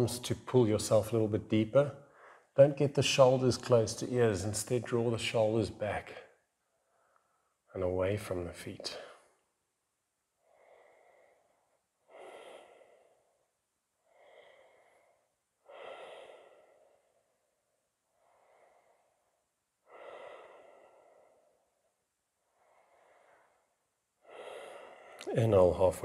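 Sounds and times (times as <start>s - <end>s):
man breathing slowly: 2.0s - 2.6s, 6.6s - 7.7s, 10.2s - 25.3s.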